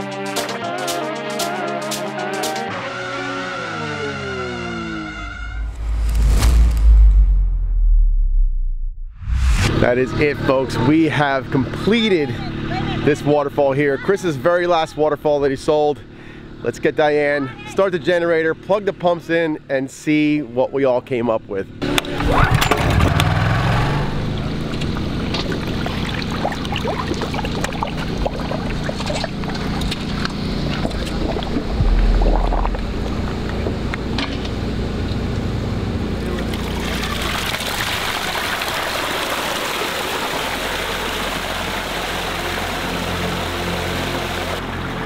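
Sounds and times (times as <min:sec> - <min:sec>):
generator engine running: 0:09.8 - 0:13.6, 0:27.1 - 0:45.0
water pouring down waterfall: 0:24.9 - 0:29.6, 0:36.3 - 0:45.0.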